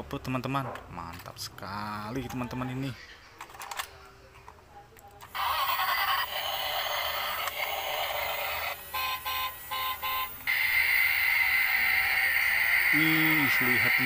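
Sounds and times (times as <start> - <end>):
toy electronic sound effects: 5.3 - 14.0.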